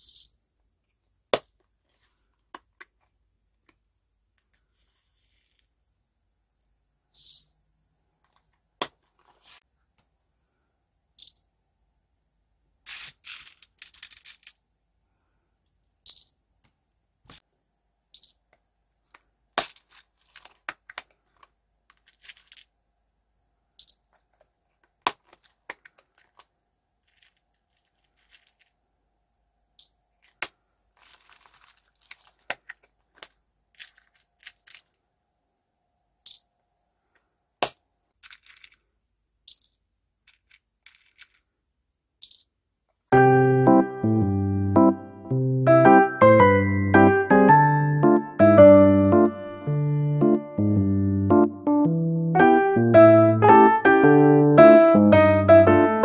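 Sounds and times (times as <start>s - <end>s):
plastic beads clicking: 12.9s - 14.6s, 18.1s - 22.7s, 25.1s - 28.8s, 29.8s - 35.0s, 38.2s - 41.5s.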